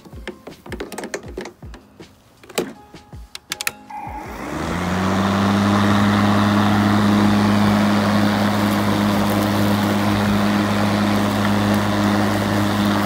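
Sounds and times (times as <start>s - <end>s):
handling clicks: 0.1s - 3.9s
electric lawn mower humming: 3.7s - 13.0s.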